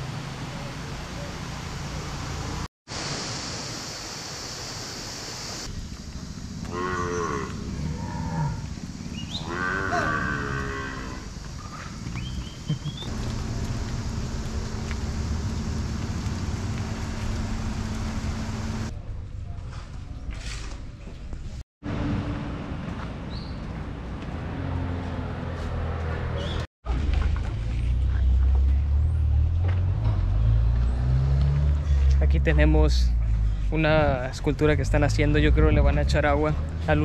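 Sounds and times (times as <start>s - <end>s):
cattle mooing: 6.7s - 8.6s, 9.4s - 11.2s
steady rushing background noise: 13.0s - 18.9s.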